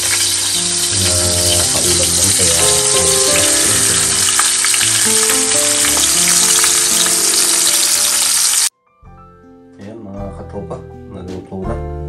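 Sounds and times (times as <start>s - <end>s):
fish sizzling in hot oil: 0.0s - 8.7s.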